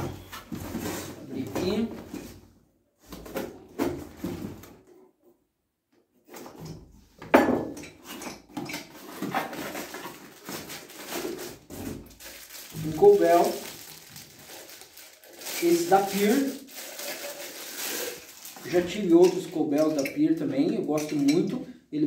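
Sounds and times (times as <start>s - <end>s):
cardboard rustling and scraping: 0.1s - 2.4s, 8.9s - 18.8s.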